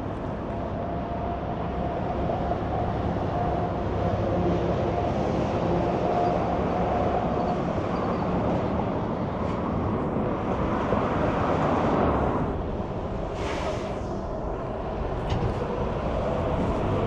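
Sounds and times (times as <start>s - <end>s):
highway traffic rumble: 0.0s - 17.0s.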